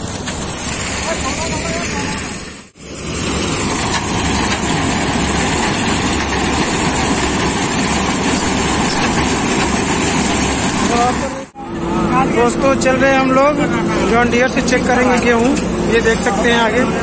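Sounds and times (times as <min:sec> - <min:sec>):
combine harvester engine and machinery: 0:00.0 - 0:17.0.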